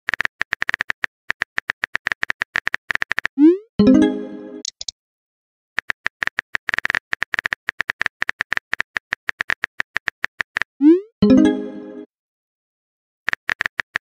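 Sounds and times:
keyboard tap clicks: 4.6s - 4.9s.

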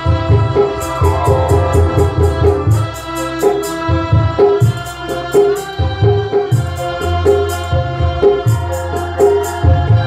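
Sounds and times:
keyboard organ-like chords: 0.5s - 3.4s
low bass line: 0.5s - 3.4s.

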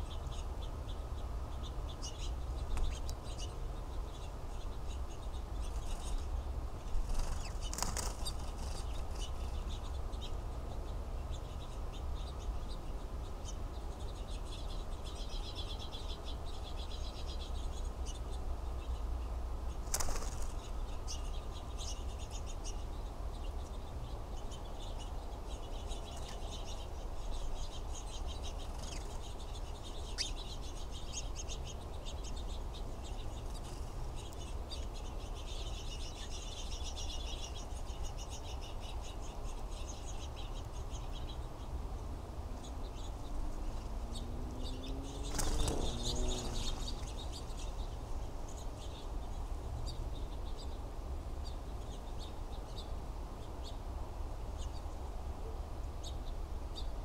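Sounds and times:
songbirds chirping: 0.0s - 57.0s
wing flaps: 45.2s - 46.8s.

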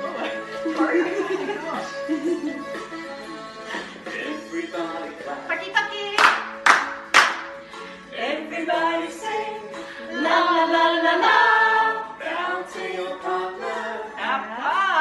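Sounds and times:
women singing together: 8.2s - 15.0s.

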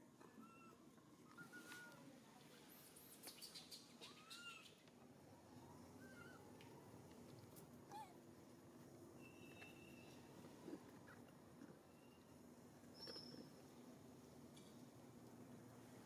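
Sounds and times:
baby monkey squeaky cries: 4.0s - 4.7s.

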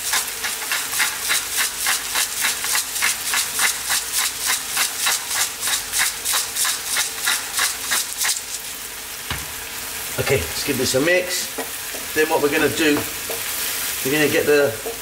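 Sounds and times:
pepper mill grinding: 0.0s - 8.7s.

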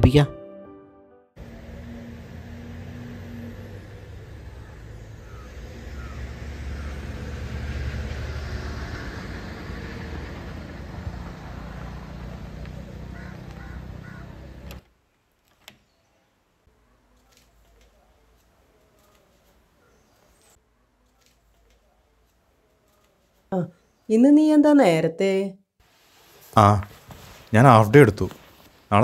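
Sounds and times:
crow cawing: 4.5s - 7.3s, 12.9s - 14.8s.

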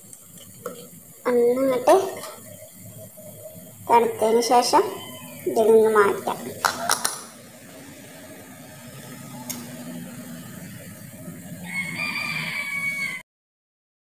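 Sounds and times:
rooster crowing: 4.8s - 5.5s, 11.4s - 13.2s.

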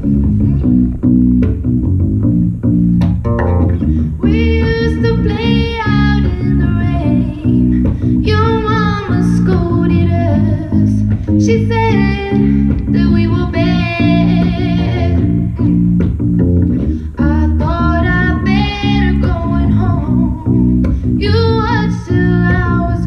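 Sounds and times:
bass line: 0.0s - 23.0s
electric guitar: 0.0s - 23.0s
woman singing: 4.2s - 15.8s, 17.1s - 23.0s.

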